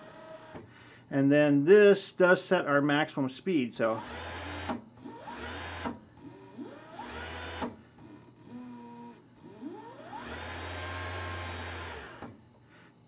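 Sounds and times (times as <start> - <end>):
sewing machine motor whining: 0.0 - 0.7, 3.8 - 12.4.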